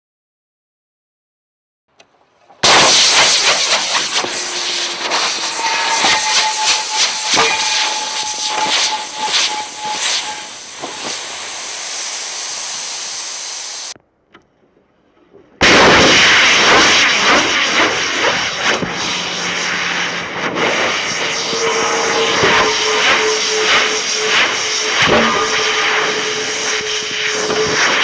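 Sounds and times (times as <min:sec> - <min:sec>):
rocket motor exhaust hiss: 0:02.6 - 0:14.0, 0:16.1 - 0:28.0
steady whistling tone: 0:02.6 - 0:14.0, 0:17.4 - 0:28.0.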